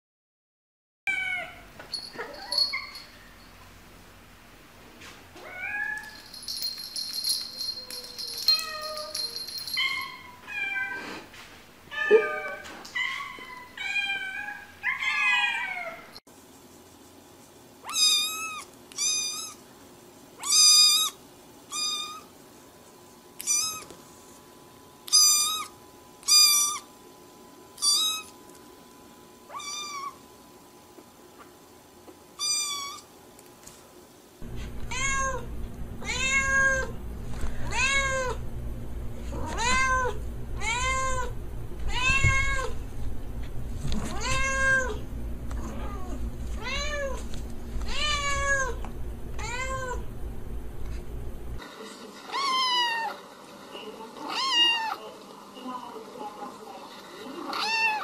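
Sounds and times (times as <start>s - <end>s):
cats meowing: 11.9s - 16.2s, 17.9s - 19.6s, 23.4s - 23.9s, 34.6s - 36.9s, 37.6s - 38.4s, 39.3s - 42.8s, 44.1s - 45.0s, 45.6s - 47.2s, 47.8s - 50.1s
kitten high meows: 17.9s - 19.6s, 23.4s - 23.9s, 27.8s - 28.3s, 32.4s - 33.0s.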